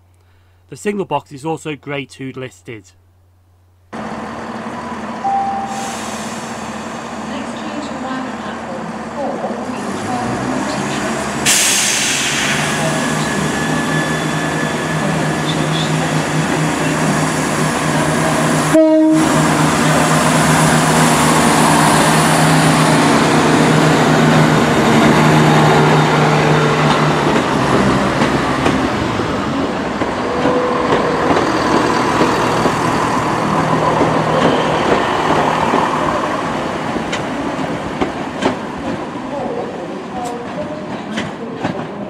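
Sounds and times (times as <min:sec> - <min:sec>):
diesel train engine drone: 0:03.2 - 0:42.0
short tone: 0:05.2 - 0:06.2.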